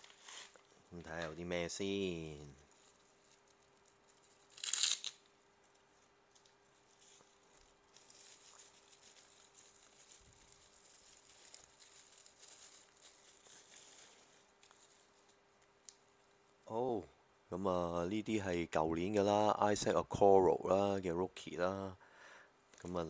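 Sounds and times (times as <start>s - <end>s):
bubble wrap ripping: 0.0s - 0.8s, 2.5s - 16.0s
bubble wrap crinkling: 0.0s - 1.4s, 2.0s - 16.6s.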